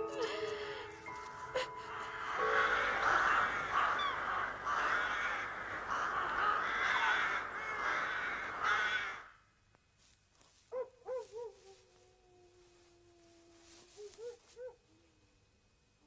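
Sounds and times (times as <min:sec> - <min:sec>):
flock of crows calling: 0:02.0 - 0:09.5.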